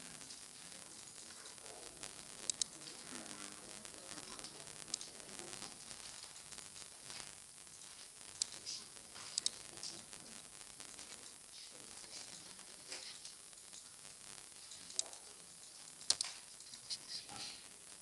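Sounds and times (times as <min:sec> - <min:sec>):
microphone hiss: 0:00.0 - 0:18.0
computer mouse clicks: 0:02.5 - 0:02.8, 0:16.0 - 0:16.4.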